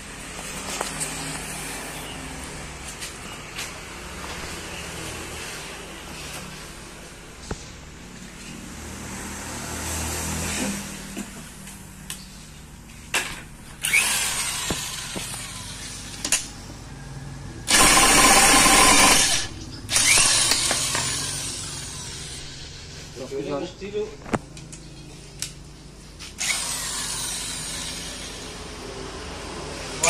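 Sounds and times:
impact wrench hammering: 17.7 - 22.4.

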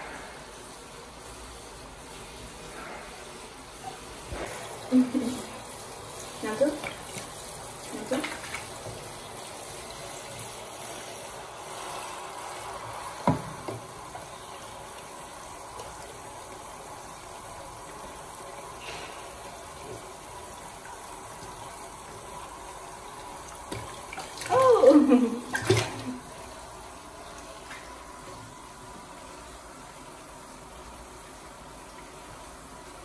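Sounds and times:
water running into a plastic tub: 0.0 - 33.0.

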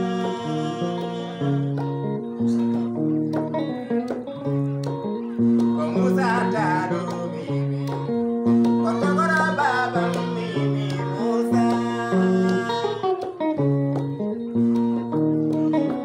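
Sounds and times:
man singing: 0.0 - 2.0, 5.7 - 13.2
picked electric guitar: 0.0 - 16.0.

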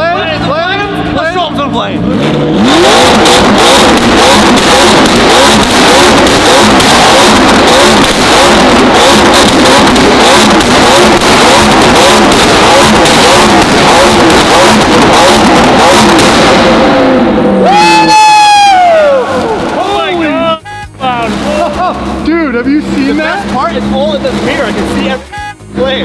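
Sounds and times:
sports car engine revving: 0.0 - 26.0
exhaust crackling pops: 3.0 - 17.2.

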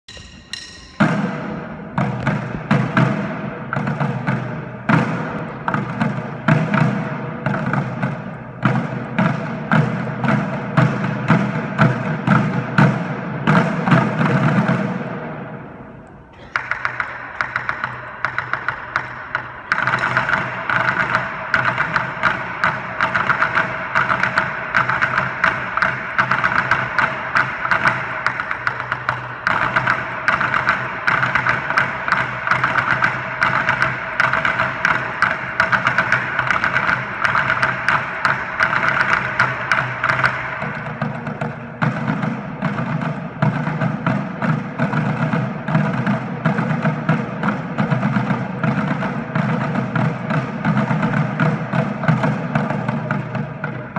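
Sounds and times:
drum line playing: 0.0 - 53.9
light high-pitched drum tapping: 0.1 - 6.8.

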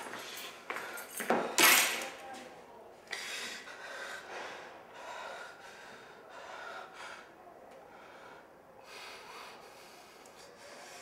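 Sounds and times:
man breathing hard: 3.1 - 11.0.

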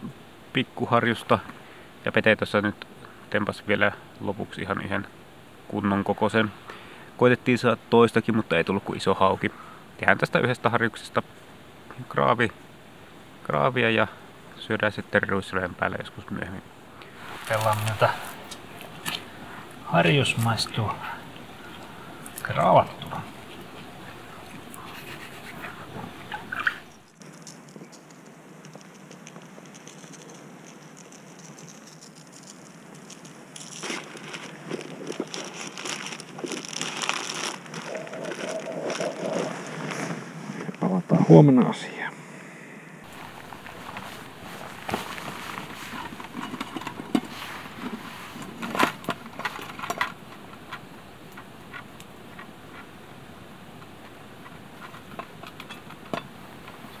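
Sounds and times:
salt grains pattering: 27.2 - 40.0
metal camp gear clinking: 43.1 - 52.9, 54.8 - 56.8.

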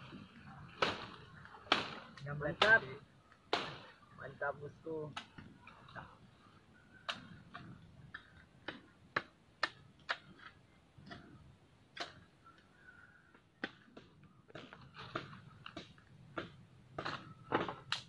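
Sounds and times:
dry sticks snapping: 5.1 - 6.0, 7.0 - 18.0.

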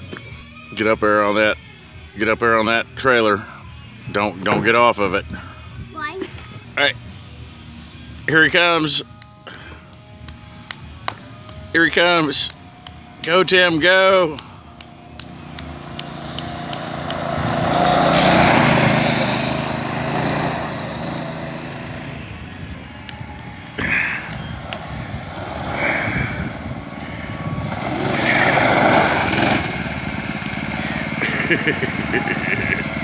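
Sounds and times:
go-kart engine driving by: 12.8 - 33.0.

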